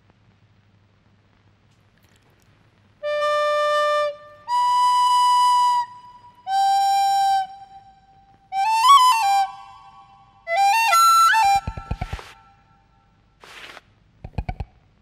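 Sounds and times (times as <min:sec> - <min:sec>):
flute playing: 0:03.0 - 0:12.8.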